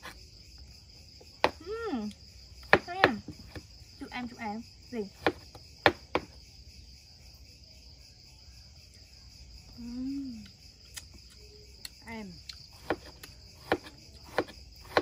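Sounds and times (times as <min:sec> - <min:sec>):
crickets chirping: 0:00.0 - 0:15.0
woman humming: 0:01.6 - 0:02.2, 0:09.7 - 0:10.6.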